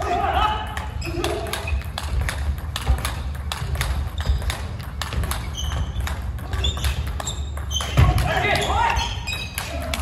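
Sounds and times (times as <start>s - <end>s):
ball clicking off bats: 0.6s - 10.0s
ball bouncing on table: 1.3s - 8.4s.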